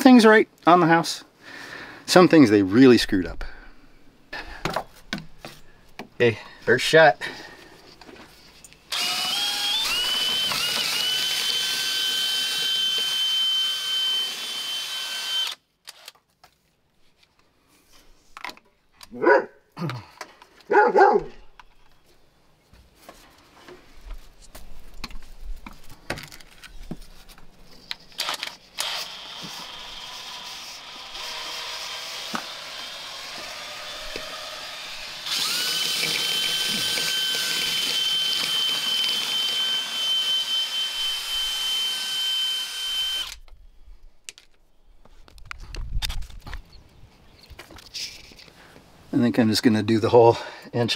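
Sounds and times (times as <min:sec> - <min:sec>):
drill motor whine: 0:08.9 - 0:15.6, 0:28.2 - 0:43.4
dog barking: 0:19.2 - 0:19.6, 0:20.7 - 0:21.4.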